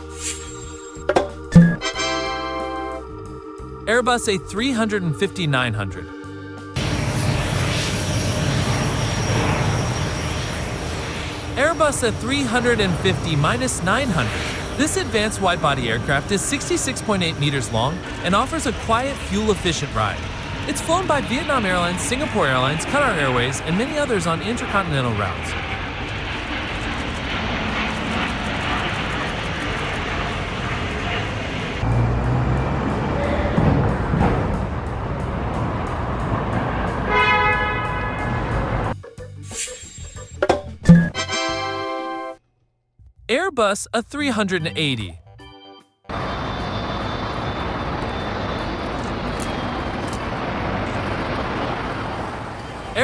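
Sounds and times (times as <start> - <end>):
jet engines at takeoff: 6.6 - 39.0, 46.1 - 53.0
faint high whine: 46.1 - 51.0.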